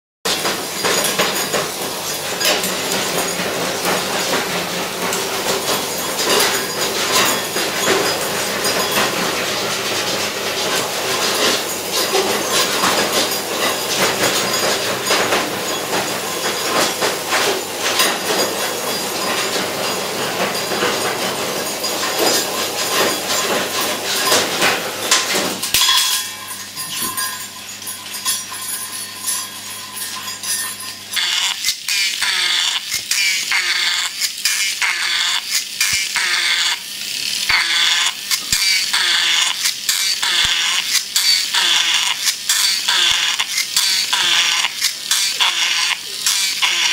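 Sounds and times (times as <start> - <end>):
toy robot clattering on floor: 25.1 - 46.9.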